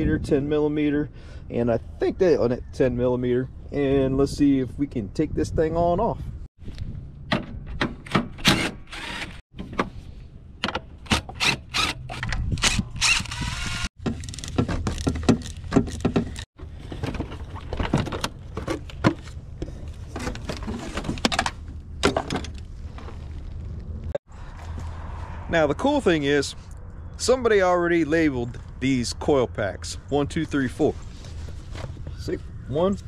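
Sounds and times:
drill whirring: 8.4s - 9.4s, 11.2s - 14.0s.

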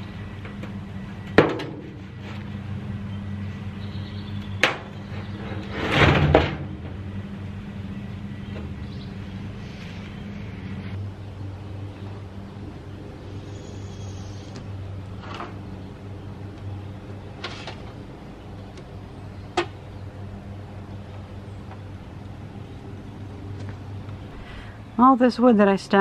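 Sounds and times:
steady low hum: 0.0s - 26.0s
hollow metal bang: 1.4s - 2.0s, 4.6s - 7.2s
metal tank scraping and rolling: 4.8s - 7.3s.

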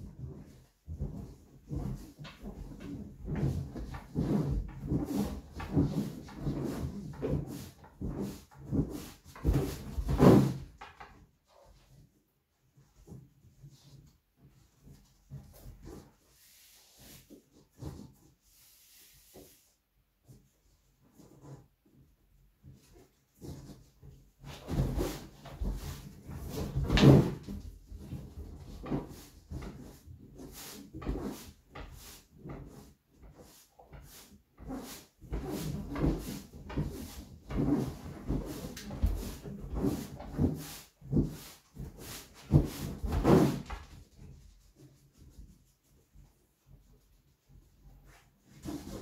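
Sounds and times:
exercise balls rubbing and creaking: 0.0s - 49.0s
exercise balls squeaking and rubbing: 33.5s - 43.6s.

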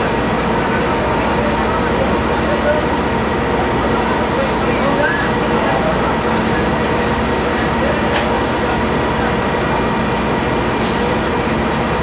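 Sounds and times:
rail coach rumbling on rails: 0.0s - 12.0s.

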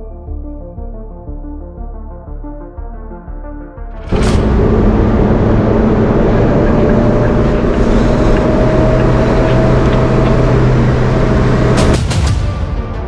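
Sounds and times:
car engine hum: 4.0s - 12.2s
road and tyre noise: 4.0s - 12.3s.

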